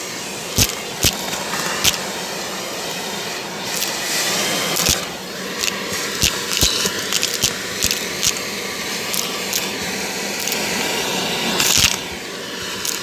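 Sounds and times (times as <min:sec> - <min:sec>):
vacuum cleaner running: 0:00.0 - 0:13.0
debris clicking and rattling: 0:04.8 - 0:08.4.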